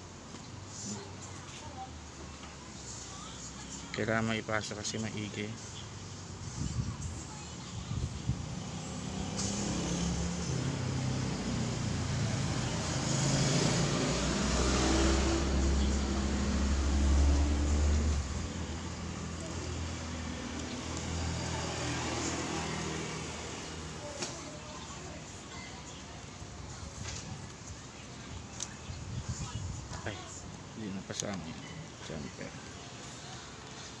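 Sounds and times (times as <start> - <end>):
vehicle passing by: 6.4 - 27.5.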